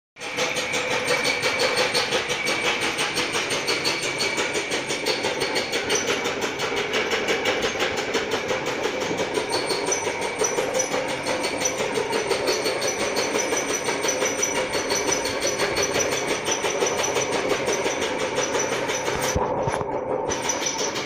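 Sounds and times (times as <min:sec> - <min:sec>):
husking machine clattering: 0:00.2 - 0:21.0
mechanical whine: 0:00.2 - 0:21.0.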